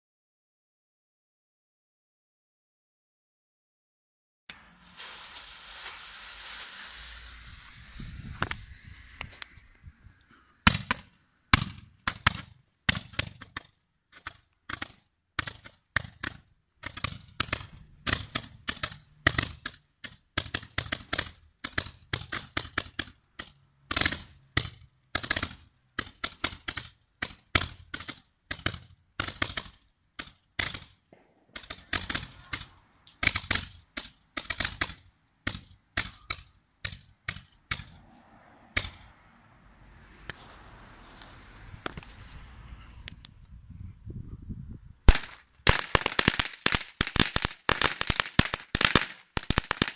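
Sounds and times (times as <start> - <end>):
fireworks bangs and cracks: 4.8 - 13.5, 30.6 - 33.8, 45.1 - 49.9.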